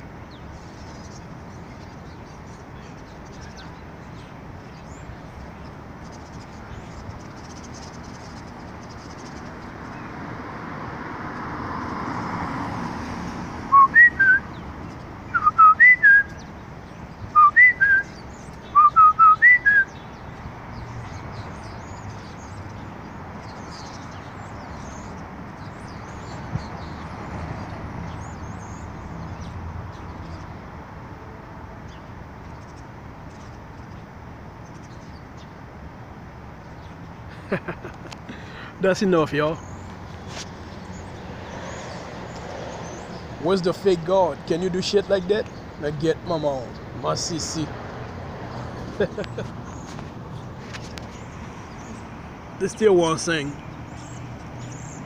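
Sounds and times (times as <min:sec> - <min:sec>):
person whistling short notes: 0:13.7 - 0:14.4, 0:15.4 - 0:16.3, 0:17.4 - 0:18.1, 0:18.8 - 0:19.9.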